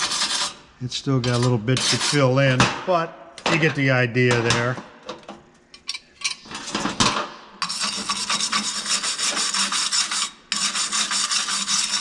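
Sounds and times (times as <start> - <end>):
wire brush scrubbing sheet metal: 0.0 - 2.6, 7.6 - 12.0.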